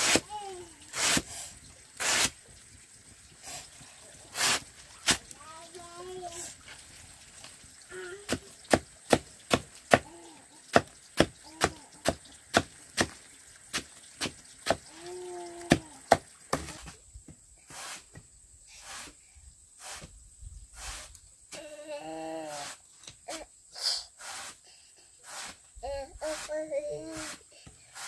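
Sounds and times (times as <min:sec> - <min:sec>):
cleaver chopping on wooden block: 0:08.3 - 0:10.1.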